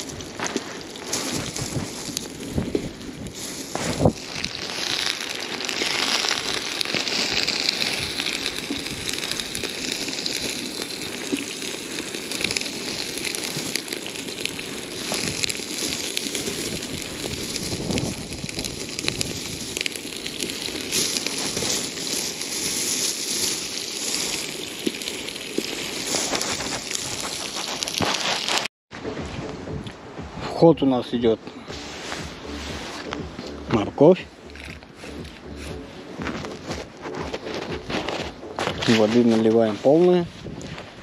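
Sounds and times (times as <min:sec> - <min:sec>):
plastic bag rustling: 0:00.0 - 0:28.7, 0:34.4 - 0:41.0
meat sizzling in hot oil: 0:00.9 - 0:28.7.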